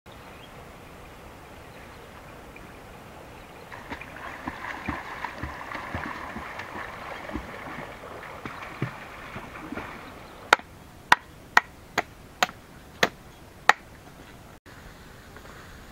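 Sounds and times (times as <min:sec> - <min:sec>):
water splashing and lapping: 0:03.6 - 0:10.6.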